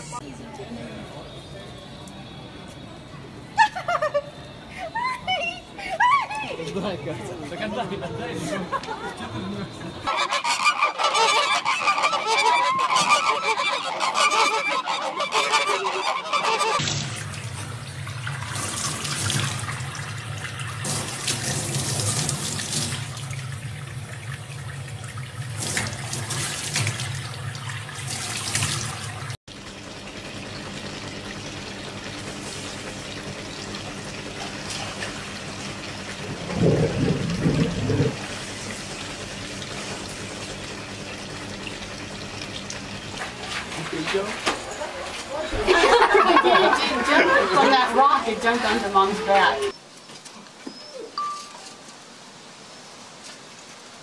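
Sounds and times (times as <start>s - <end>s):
wavering high-pitched cry: 10.1s - 16.8s.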